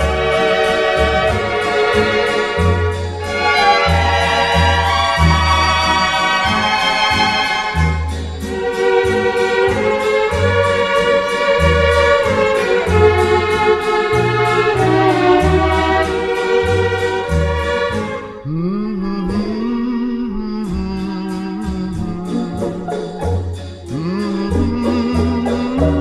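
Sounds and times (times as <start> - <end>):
instrumental pop music: 0.0 - 26.0.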